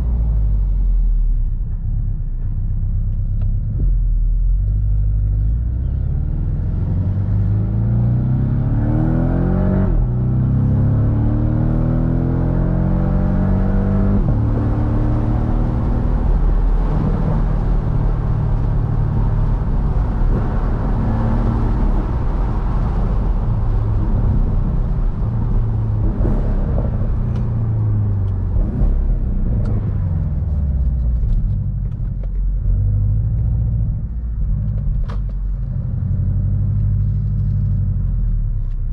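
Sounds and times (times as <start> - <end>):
car engine accelerating: 0.0 - 38.9
wind noise: 13.1 - 32.9.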